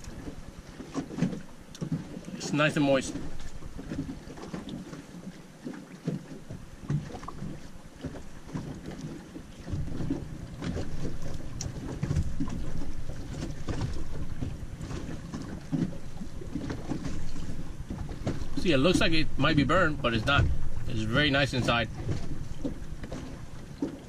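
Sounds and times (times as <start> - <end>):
water lapping against boat hull: 0.0 - 24.0
wind buffeting microphone: 8.6 - 24.0.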